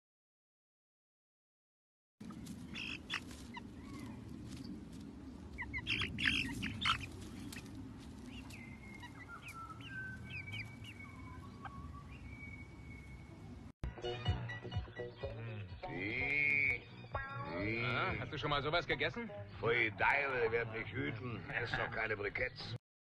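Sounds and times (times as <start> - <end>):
low outdoor rumble: 2.2 - 13.7
birds chirping: 2.2 - 22.8
whistled bird notes: 8.3 - 13.3.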